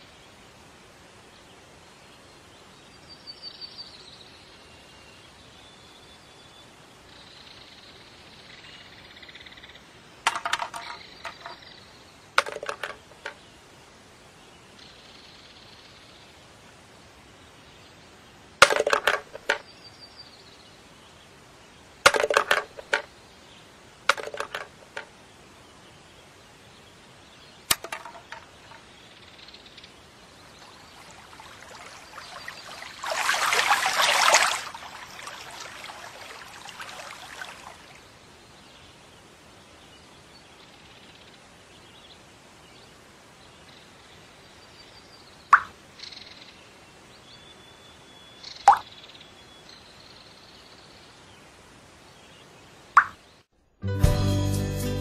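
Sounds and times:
faint steady hiss: 0:00.0 - 0:53.7
objects clattering into bins: 0:10.3 - 0:11.6, 0:12.4 - 0:13.4, 0:18.6 - 0:19.6, 0:22.1 - 0:23.1, 0:24.1 - 0:25.1, 0:27.7 - 0:28.8.

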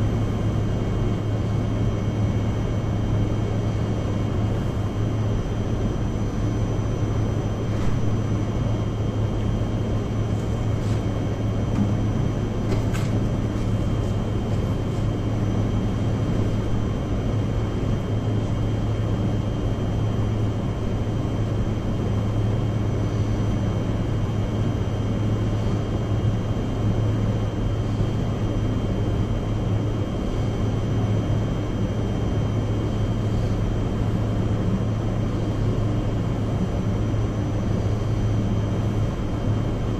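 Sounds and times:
blower fan running: 0:00.0 - 0:39.9.

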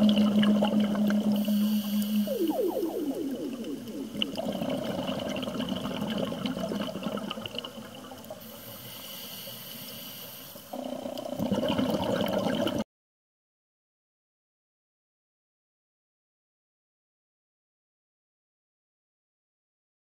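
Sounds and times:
underwater diver bubbles gurgling: 0:00.0 - 0:08.8, 0:10.7 - 0:12.8.

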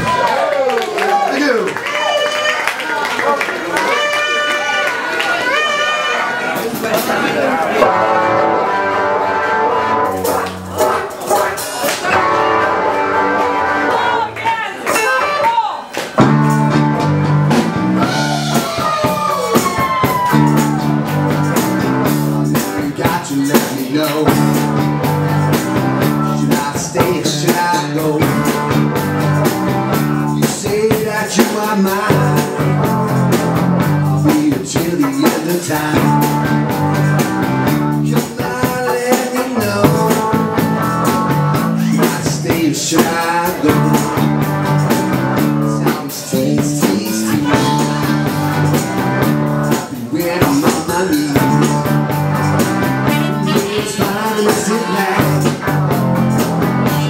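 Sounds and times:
drum kit beat: 0:05.5 - 0:57.0
repeating bass line: 0:16.2 - 0:31.2, 0:31.9 - 0:35.0, 0:35.8 - 0:38.6, 0:39.6 - 0:42.8, 0:43.6 - 0:57.0.

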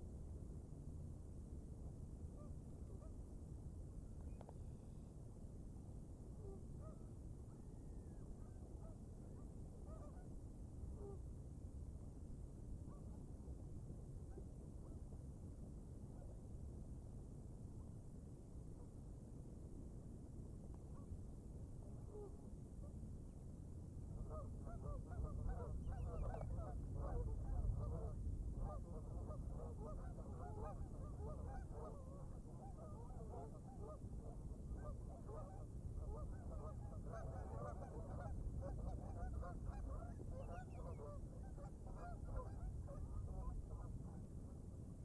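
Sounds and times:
low steady rumble: 0:00.0 - 0:45.0.

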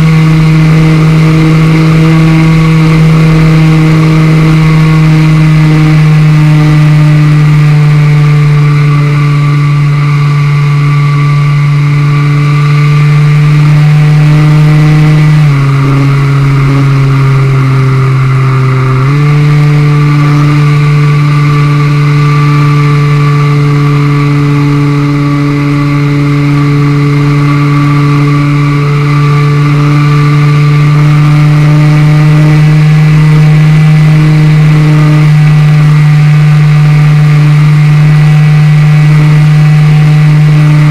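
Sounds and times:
model plane motor and propeller: 0:00.0 - 0:40.9.

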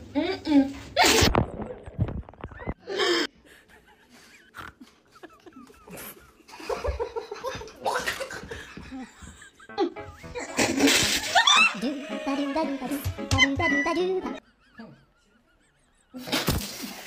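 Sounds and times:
people laughing: 0:03.4 - 0:16.3.

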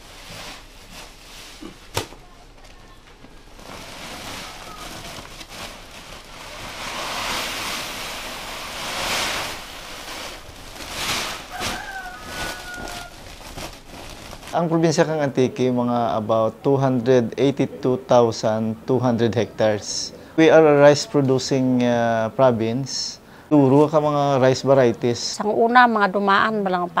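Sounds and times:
sacks rustling: 0:00.0 - 0:15.1
rice grain pouring: 0:03.6 - 0:13.2.

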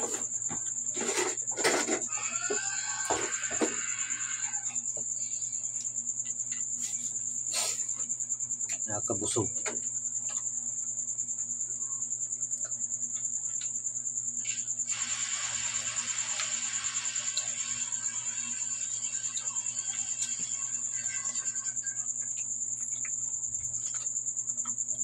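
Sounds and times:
cricket trilling: 0:00.0 - 0:25.0
hiss: 0:06.8 - 0:08.1, 0:14.4 - 0:21.7.

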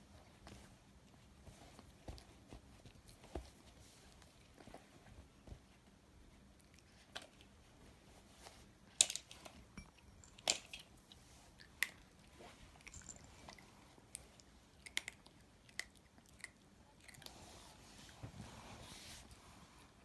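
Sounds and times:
puppy crunching dry food: 0:10.3 - 0:17.3.

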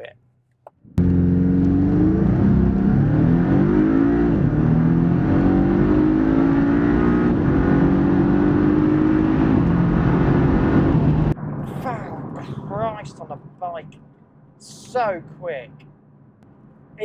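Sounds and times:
car engine accelerating: 0:00.8 - 0:13.2.

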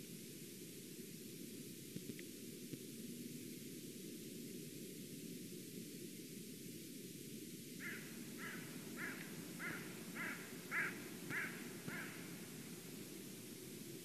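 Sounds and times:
eagle calling: 0:07.8 - 0:12.6.

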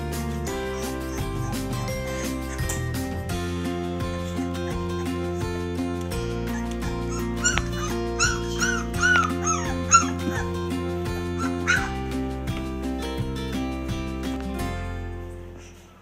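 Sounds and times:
acoustic guitar background music: 0:00.0 - 0:16.0
puppy yipping and whimpering: 0:00.1 - 0:12.0.

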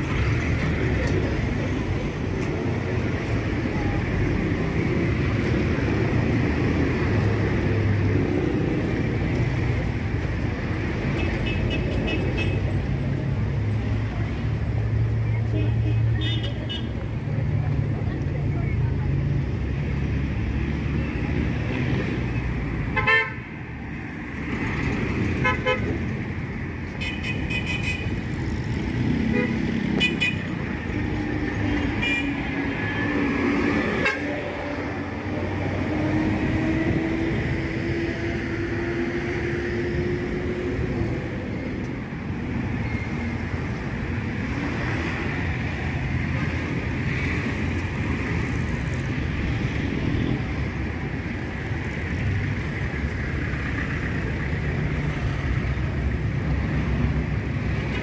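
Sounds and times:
street traffic: 0:00.0 - 0:58.0.

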